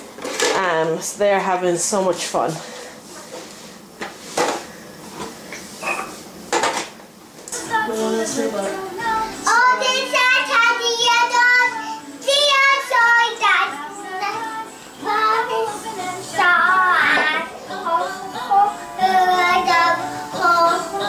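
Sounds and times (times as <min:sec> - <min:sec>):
toddler singing: 0:09.0 - 0:21.0.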